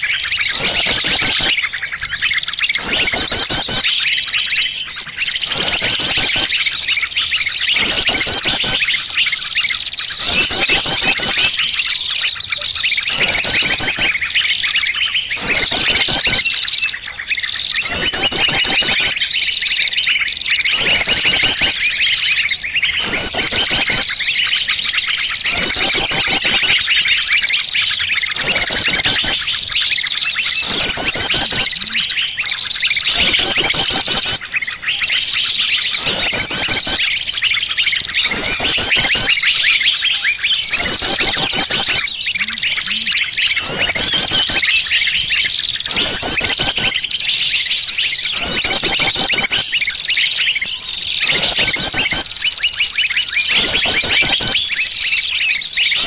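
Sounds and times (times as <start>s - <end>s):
small birds chirping: 0.0s - 56.0s
fast trilled phrases: 30.5s - 34.6s.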